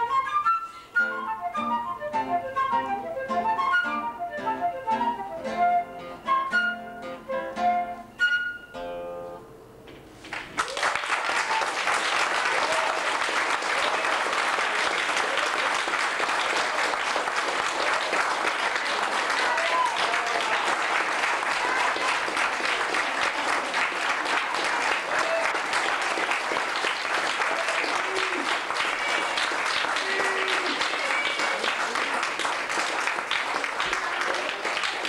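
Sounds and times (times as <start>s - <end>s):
flute and classical guitar: 0.0s - 9.4s
audience applause: 10.3s - 35.0s.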